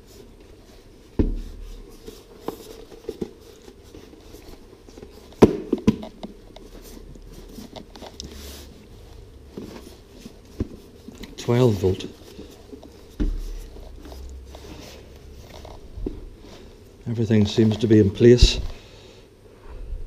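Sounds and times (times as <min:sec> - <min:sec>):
knocks and clicks of parts handled: 0:02.4 - 0:08.4.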